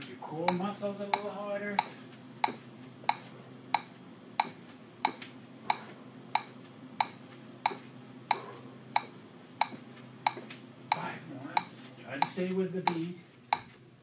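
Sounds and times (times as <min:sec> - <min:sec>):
metronome clicking: 0:11.6 - 0:13.7.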